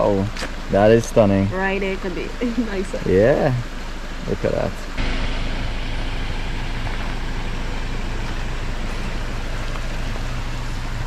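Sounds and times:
car engine humming: 0.0s - 11.0s
broad rushing noise: 4.3s - 11.0s.

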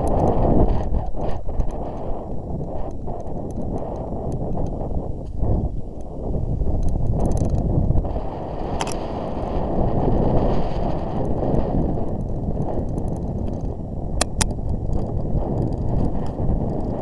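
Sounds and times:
mountain bike rattling on dirt trail: 0.0s - 5.6s, 6.3s - 13.8s
wind rushing over microphone: 0.0s - 17.0s.

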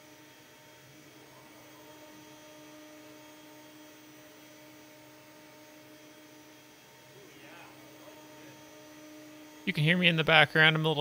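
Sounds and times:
router spindle faint hum: 0.0s - 11.0s.

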